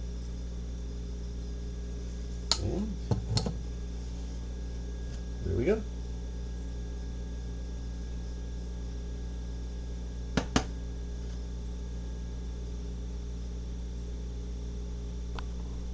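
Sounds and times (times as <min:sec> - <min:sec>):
steady low hum: 0:00.0 - 0:15.9.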